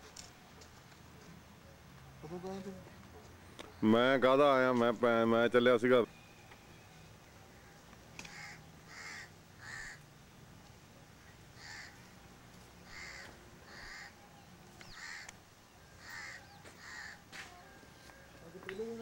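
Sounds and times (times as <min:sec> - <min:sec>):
crows cawing: 0:07.5 - 0:10.1, 0:11.2 - 0:12.2, 0:12.8 - 0:14.2, 0:14.8 - 0:17.9.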